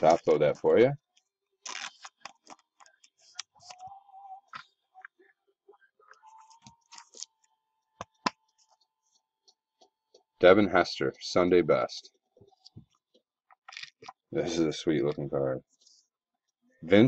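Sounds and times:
plastic sleeve crinkling: 0:01.0 - 0:03.8.

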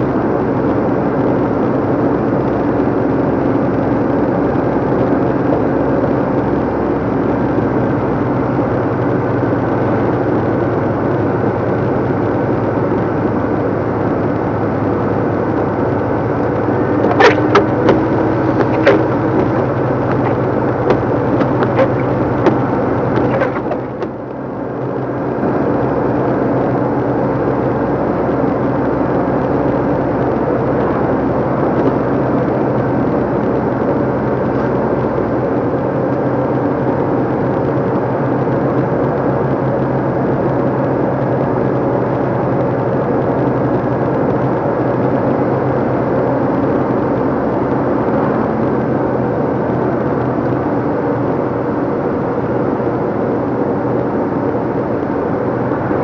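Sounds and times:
lorry diesel engine running: 0:00.0 - 0:56.0
sharp knocks and rattles: 0:17.0 - 0:24.2.

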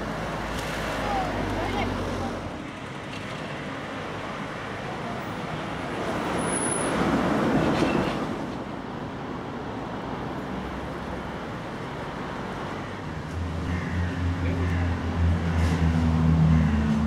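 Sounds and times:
traffic hum: 0:00.0 - 0:17.0
vehicle passing: 0:13.2 - 0:17.0.

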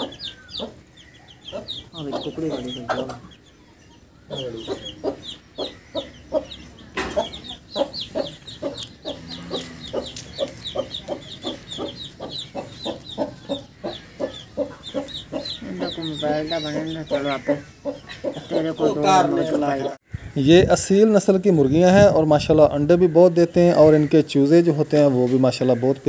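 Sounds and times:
hen clucking: 0:00.0 - 0:20.5
chicks peeping: 0:00.0 - 0:20.7.

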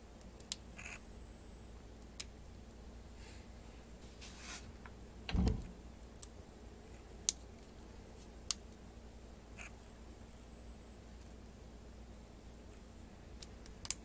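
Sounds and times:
dull thump: 0:05.3 - 0:05.7.

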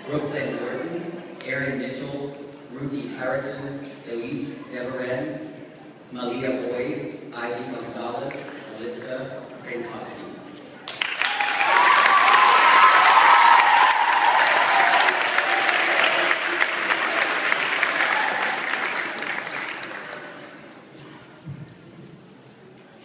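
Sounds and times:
audience applauding: 0:10.8 - 0:20.6
high cheering voices: 0:11.0 - 0:20.3.

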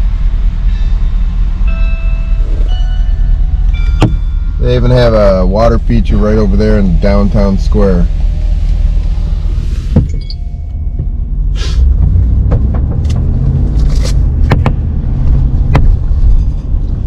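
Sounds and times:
engine and road rumble: 0:00.0 - 0:17.0
short hisses: 0:11.5 - 0:11.9
sharp clicks and knocks: 0:12.0 - 0:14.9, 0:15.7 - 0:16.0.

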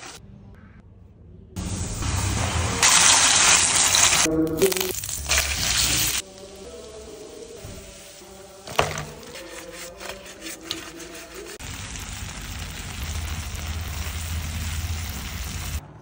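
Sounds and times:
food sizzling in a pan: 0:01.6 - 0:09.3, 0:11.5 - 0:15.8.

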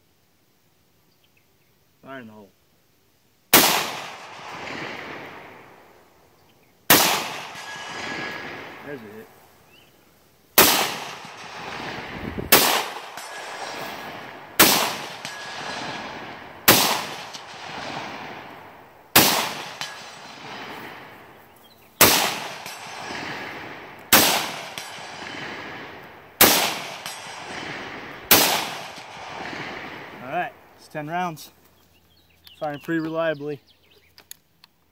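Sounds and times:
rifle shots with rolling echo: 0:03.5 - 0:06.2, 0:06.9 - 0:09.6, 0:10.5 - 0:30.8.

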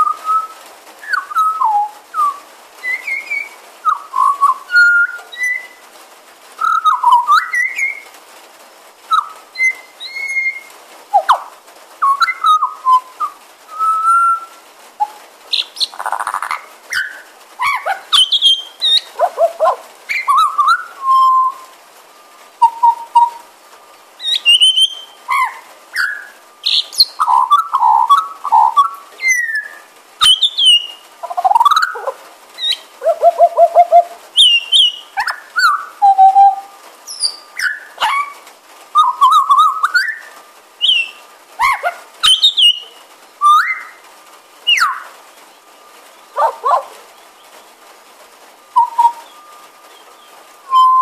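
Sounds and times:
magpie singing: 0:15.5 - 0:21.6, 0:24.2 - 0:38.4, 0:40.8 - 0:44.0, 0:44.7 - 0:45.1, 0:48.8 - 0:49.4.

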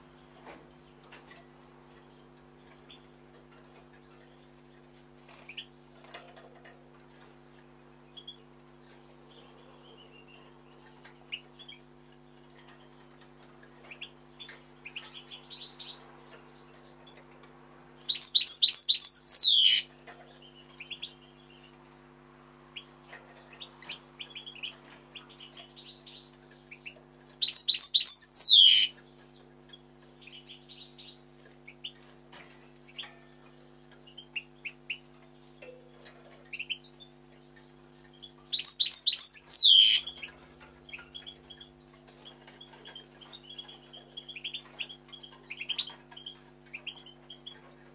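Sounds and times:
goldfinch twittering: 0:18.0 - 0:19.8, 0:25.4 - 0:29.0, 0:37.6 - 0:40.3.

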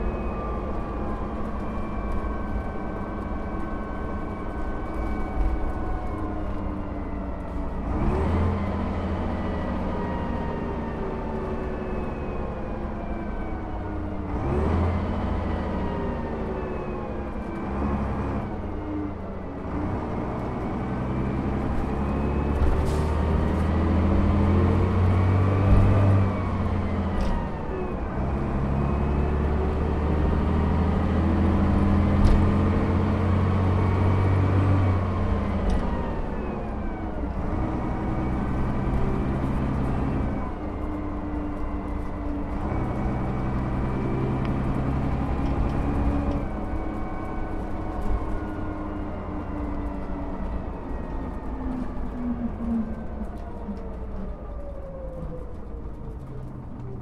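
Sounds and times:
bus diesel engine revving: 0:07.7 - 0:11.8, 0:14.1 - 0:16.7, 0:17.5 - 0:18.8, 0:19.4 - 0:52.2.

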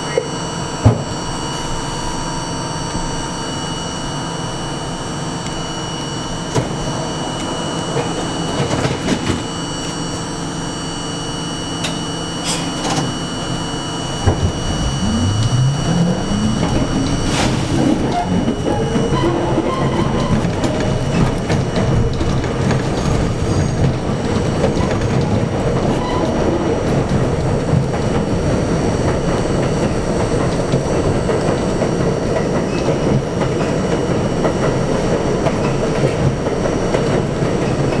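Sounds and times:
subway car humming: 0:00.0 - 0:38.0
traction motor whine: 0:11.4 - 0:21.9.

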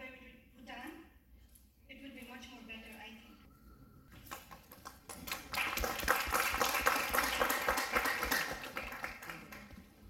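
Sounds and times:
audience clapping: 0:04.2 - 0:10.0.

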